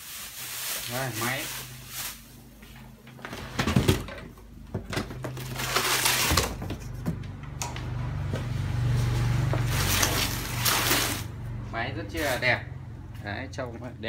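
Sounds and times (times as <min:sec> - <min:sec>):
cardboard and packing rustling: 0:00.0 - 0:07.3, 0:09.4 - 0:11.3.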